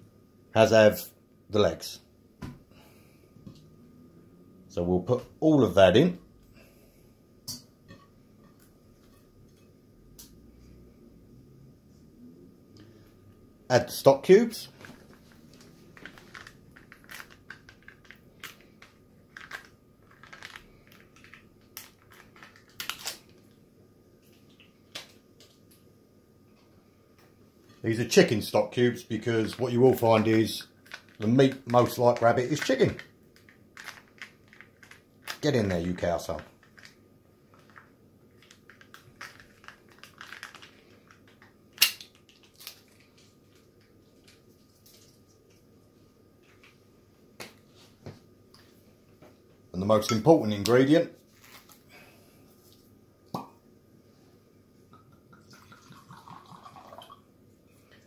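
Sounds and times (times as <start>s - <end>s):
foil wrapper crinkling: 14.8s - 23.6s, 29.4s - 45.2s, 51.2s - 51.9s.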